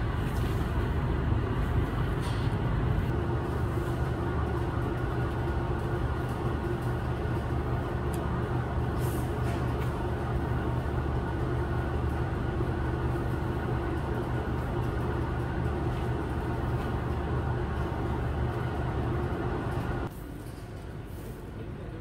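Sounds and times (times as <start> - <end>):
broom sweeping concrete floor: 8.9 - 10.0.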